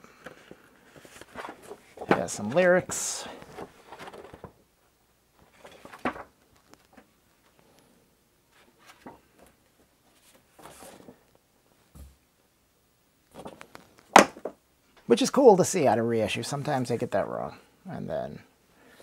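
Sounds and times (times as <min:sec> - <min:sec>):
paper rustling: 0:00.2 - 0:04.6, 0:05.4 - 0:07.6, 0:08.5 - 0:11.3, 0:13.3 - 0:14.1.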